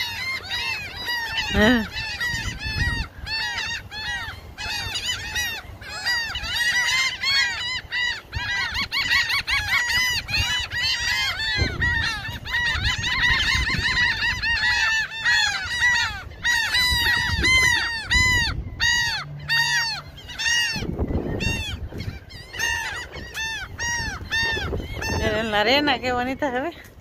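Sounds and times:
flock of gulls calling: 0:00.0 - 0:27.0.

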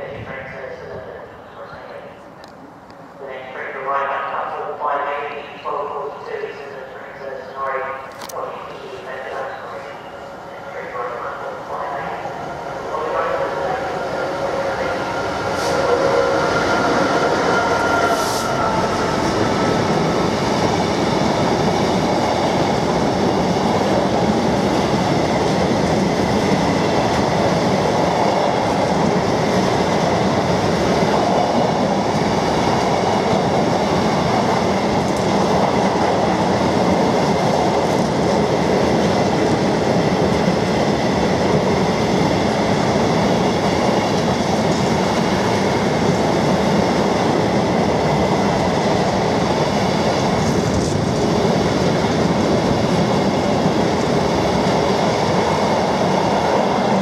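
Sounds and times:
diesel locomotive engine: 0:00.0 - 0:57.0.

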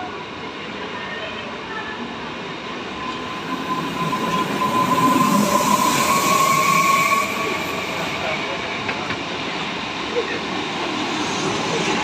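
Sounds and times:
train cars rumbling: 0:02.7 - 0:12.0.

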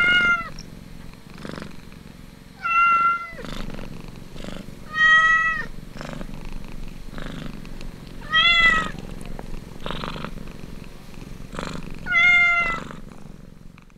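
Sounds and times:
cat mewing: 0:00.0 - 0:00.5, 0:02.6 - 0:03.5, 0:04.8 - 0:05.7, 0:08.2 - 0:09.0, 0:12.0 - 0:12.9
cat purring: 0:00.0 - 0:13.9.

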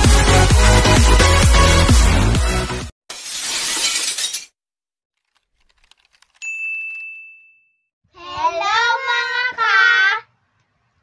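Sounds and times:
bright bell-like ding: 0:06.4 - 0:07.8.

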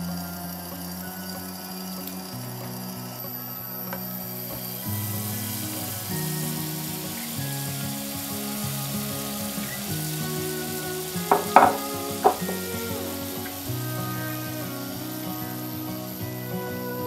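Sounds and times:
batter sizzling in hot oil: 0:04.6 - 0:16.5
sharp knocks: 0:11.3 - 0:12.6.

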